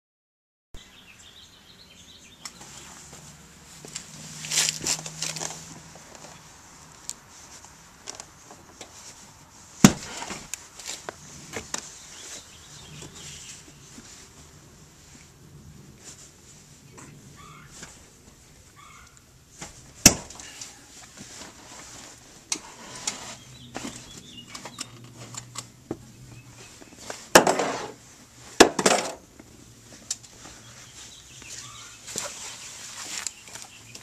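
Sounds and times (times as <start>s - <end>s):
fabric cushion rustling and scraping: 2.6s - 18.4s, 20.6s - 24.4s, 29.8s - 33.3s.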